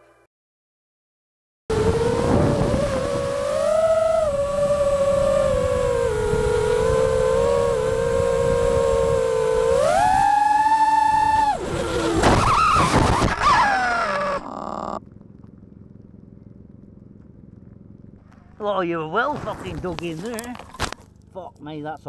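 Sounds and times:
electric motor and propeller whining: 0:01.7 - 0:18.6.

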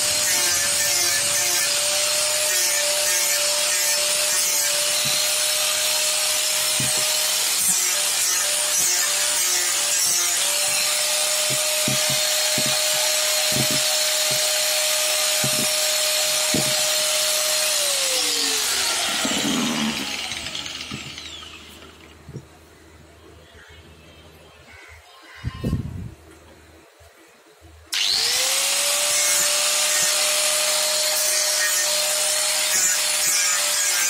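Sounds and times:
power tool motor whine: 0:00.0 - 0:22.2, 0:27.9 - 0:33.3.

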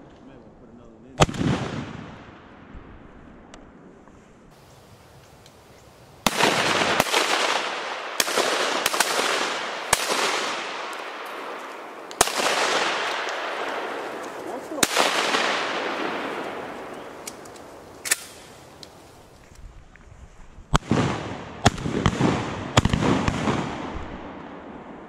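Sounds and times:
shotgun shots: 0:01.2 - 0:02.6, 0:06.2 - 0:18.8, 0:20.7 - 0:24.7.

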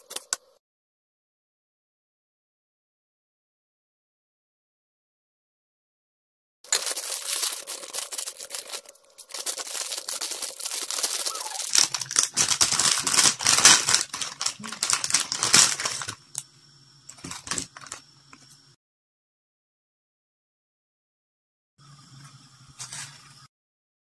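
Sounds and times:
plastic packaging crinkling and tearing: 0:06.7 - 0:16.4, 0:17.1 - 0:18.0.

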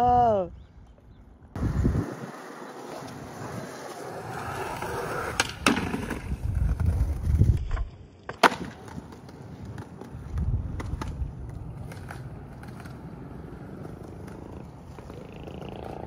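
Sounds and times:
skateboard wheels rolling: 0:01.5 - 0:16.0
skateboard scraping on ledge: 0:01.6 - 0:07.6
skateboard landing smack: 0:05.3 - 0:06.3, 0:07.7 - 0:10.2
skateboard tail pop: 0:05.3 - 0:06.3, 0:07.6 - 0:11.2.

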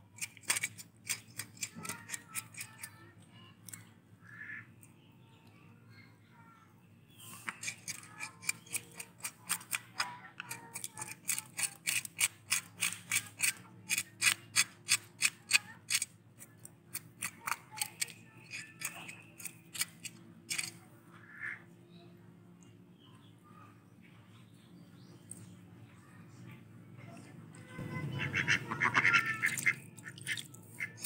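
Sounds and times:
knife scraping fish scales: 0:00.2 - 0:02.9, 0:07.3 - 0:16.1, 0:16.9 - 0:20.8, 0:28.8 - 0:31.0.

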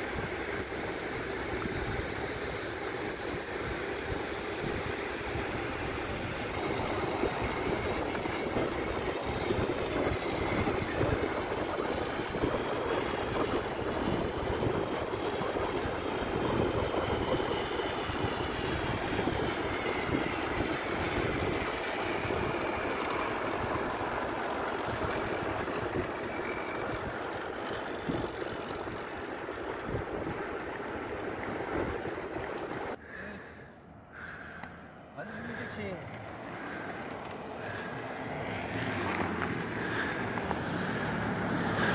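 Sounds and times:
wind buffeting microphone: 0:00.0 - 0:33.0
bicycle tyres on asphalt: 0:00.0 - 0:41.9.

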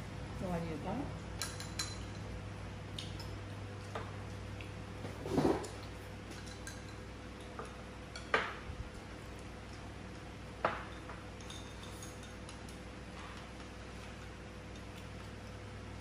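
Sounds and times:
faint steady hum: 0:00.0 - 0:16.0
chopsticks clinking on porcelain: 0:01.4 - 0:02.3, 0:05.6 - 0:08.5, 0:10.7 - 0:12.8.

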